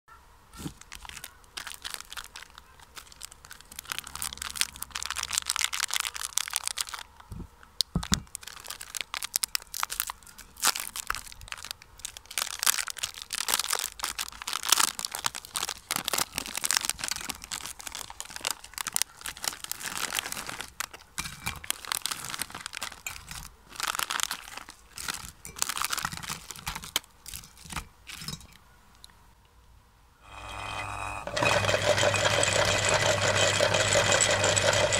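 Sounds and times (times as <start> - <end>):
plastic wrapper crinkling and tearing: 0.6 - 28.4
wafers crunching and clicking: 0.6 - 29.1.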